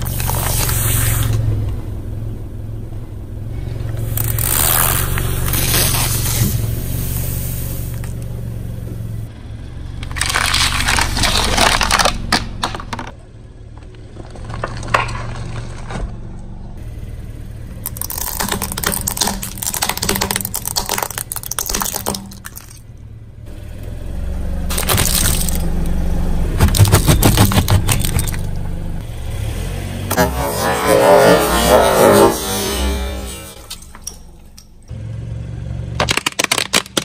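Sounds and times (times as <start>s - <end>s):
low rumble of car: 0.0s - 37.0s
tyre crushing crunchy items: 10.0s - 13.2s, 17.8s - 22.8s, 24.7s - 28.6s, 36.0s - 37.0s.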